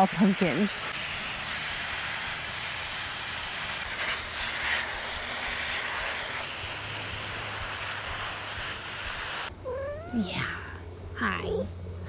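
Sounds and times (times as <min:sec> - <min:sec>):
hose nozzle spraying water: 0:00.0 - 0:09.5.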